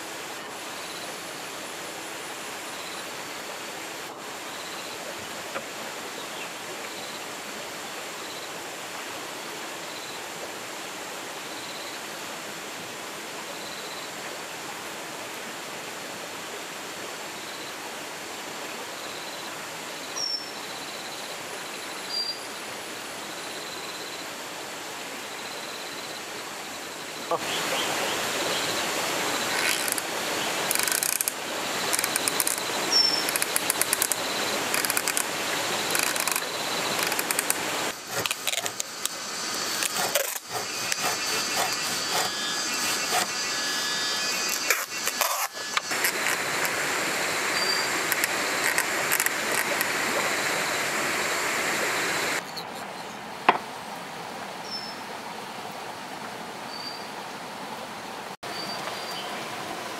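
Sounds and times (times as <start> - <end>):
saw rasping through wood: 29.4 - 46.8
bamboo mechanism clattering: 29.5 - 46.7.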